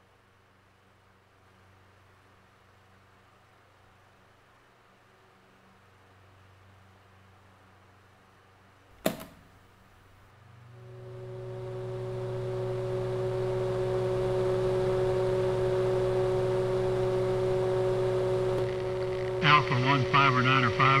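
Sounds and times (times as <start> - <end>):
radio hum and hiss: 10.6 - 21.0
steady radio tones: 11.8 - 21.0.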